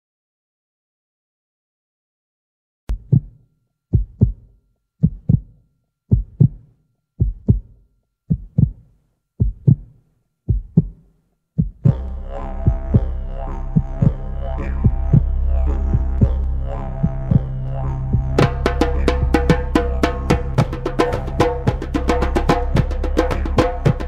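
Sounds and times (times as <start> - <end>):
heartbeat thumps: 2.9 - 6.6, 7.2 - 8.8, 9.4 - 11.0, 11.6 - 13.2, 13.8 - 14.2, 14.8 - 24.0.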